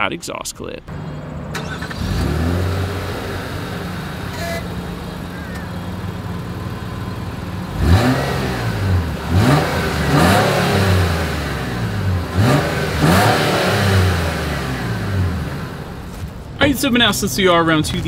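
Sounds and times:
engine revving in quick blips: 0:00.9 - 0:16.0
car engine idling: 0:00.9 - 0:18.0.

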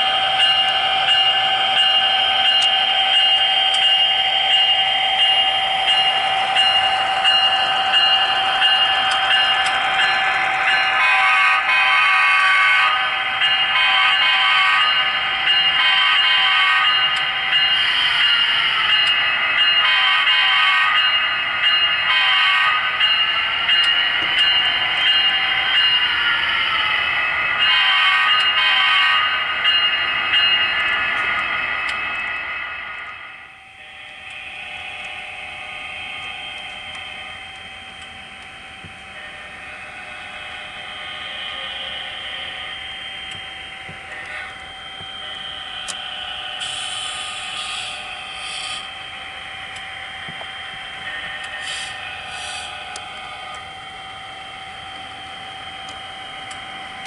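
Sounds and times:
locomotive running sound: 0:00.0 - 0:57.0
model locomotive horn blasts: 0:11.0 - 0:13.2, 0:13.8 - 0:15.1, 0:15.8 - 0:17.2, 0:19.8 - 0:21.2, 0:22.1 - 0:23.0, 0:27.6 - 0:29.4.

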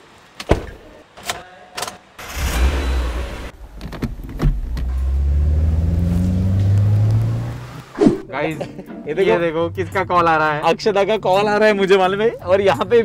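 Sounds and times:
car engine starting and revving: 0:02.2 - 0:08.0.

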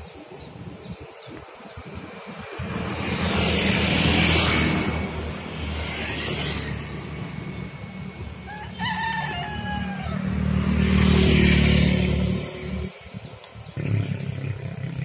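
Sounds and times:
rooster crowing: 0:08.4 - 0:10.8.

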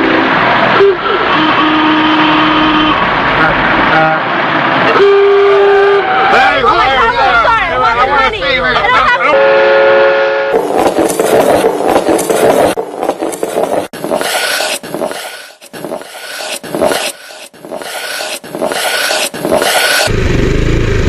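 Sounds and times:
horn-like tone: 0:00.0 - 0:06.5, 0:09.3 - 0:10.6.

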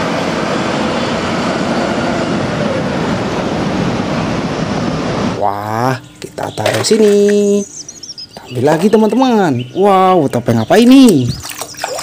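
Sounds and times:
buses driving past: 0:00.0 - 0:05.4.

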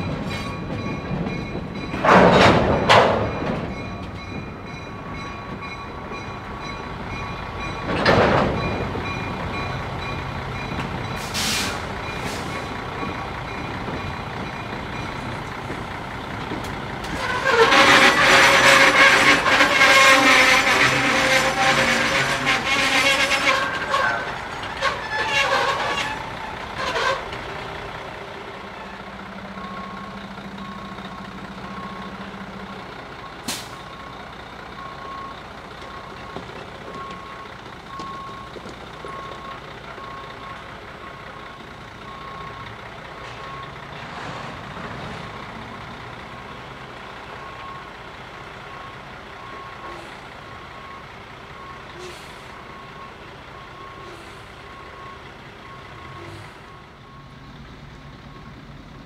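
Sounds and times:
truck backup alarm beeping: 0:27.8 - 0:44.0, 0:45.4 - 0:59.0.

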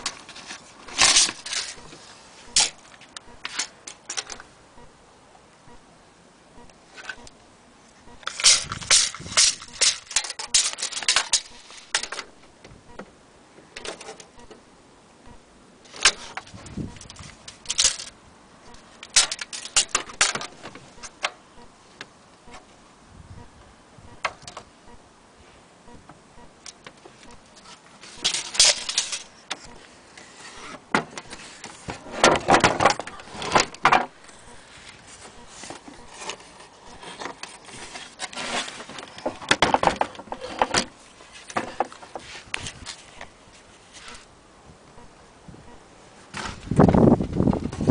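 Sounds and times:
tape measure clicks and rattles: 0:08.2 - 0:12.3, 0:15.9 - 0:18.2, 0:19.0 - 0:20.5, 0:28.1 - 0:29.3
rustling and knocking: 0:35.1 - 0:43.3.

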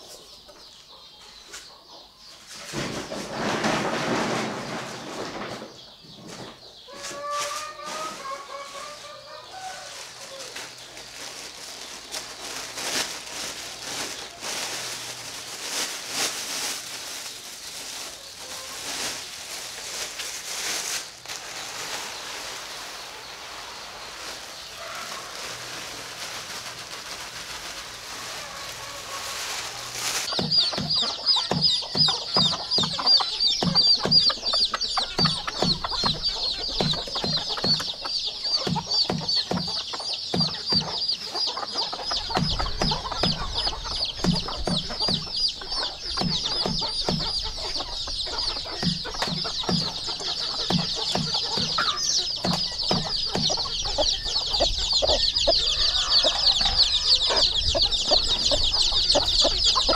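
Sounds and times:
chickens clucking: 0:00.0 - 0:59.9
high-pitched chirping: 0:30.2 - 0:59.9.

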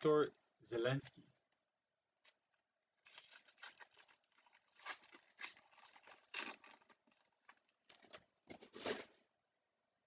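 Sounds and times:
foil wrapper crinkling and tearing: 0:03.0 - 0:09.2.

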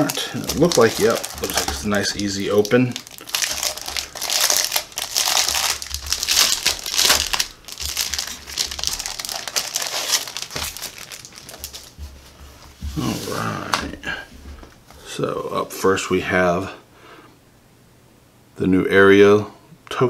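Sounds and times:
plastic shrink wrap crinkling: 0:00.0 - 0:14.9.

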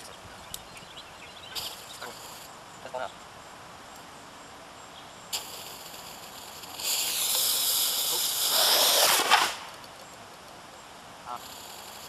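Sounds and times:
rocket firing with high hiss: 0:05.3 - 0:09.9.

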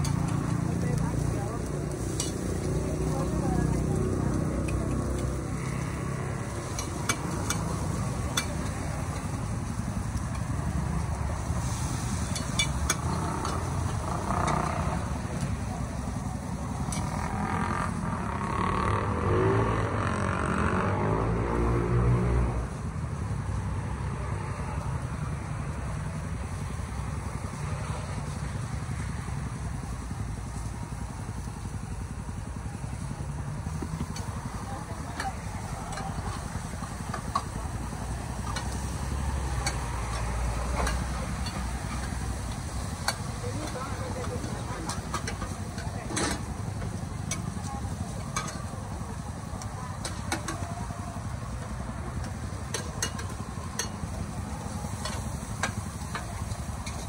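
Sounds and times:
vehicle engine passing: 0:00.0 - 0:57.0.

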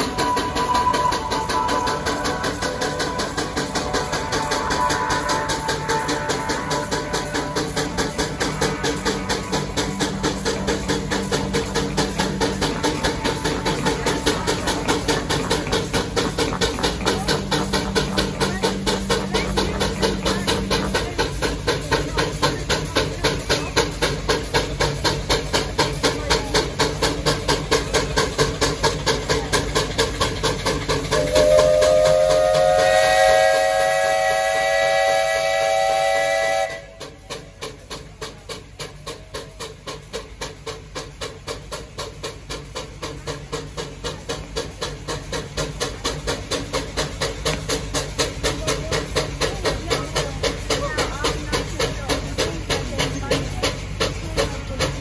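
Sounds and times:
high whistling whine: 0:00.0 - 0:21.2
tractor engine under load: 0:00.0 - 0:55.0.

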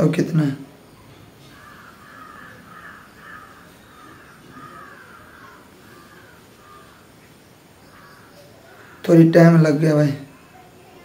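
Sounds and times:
crow cawing: 0:01.4 - 0:09.1.

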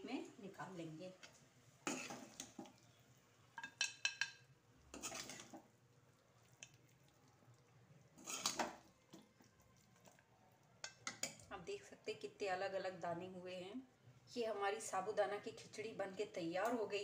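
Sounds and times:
spatula scraping metal pan: 0:01.8 - 0:02.5, 0:04.9 - 0:05.6, 0:08.2 - 0:08.8.

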